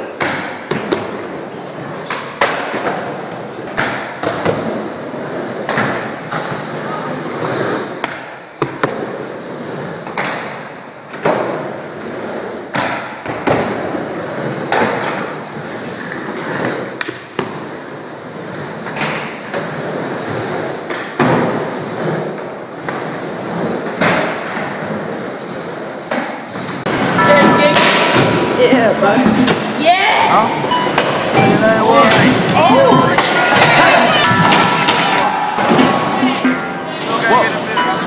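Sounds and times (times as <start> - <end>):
skateboard wheels rolling on wood: 0.0 - 27.2.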